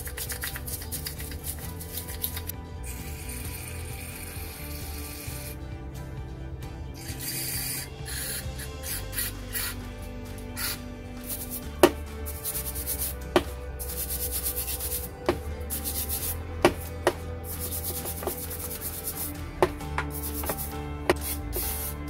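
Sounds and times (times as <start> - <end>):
spray cleaner hissing: 7.0 - 9.8, 10.6 - 16.8, 17.4 - 19.4, 20.0 - 22.0.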